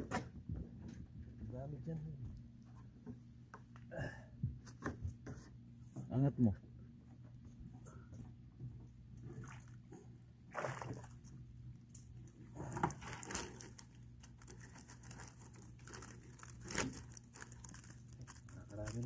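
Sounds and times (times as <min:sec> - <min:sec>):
water splashing and dripping: 0:10.5 - 0:12.1.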